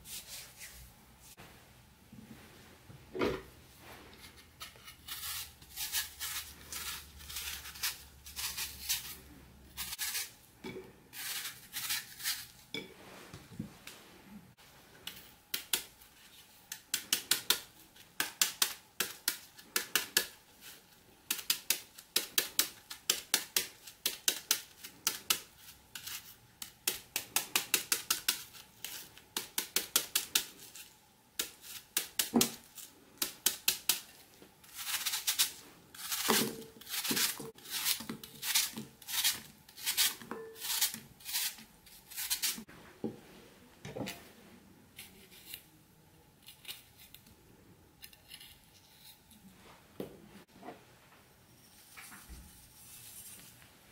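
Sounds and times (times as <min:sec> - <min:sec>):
knife cutting an apple: 0:04.2 - 0:10.4, 0:15.1 - 0:42.7.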